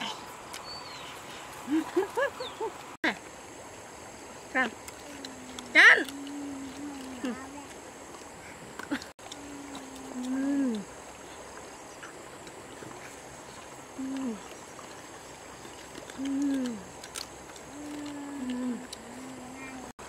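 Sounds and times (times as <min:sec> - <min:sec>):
woman humming while eating: 0:05.1 - 0:07.5, 0:08.9 - 0:10.9, 0:13.9 - 0:14.6, 0:16.1 - 0:16.9, 0:17.7 - 0:19.9.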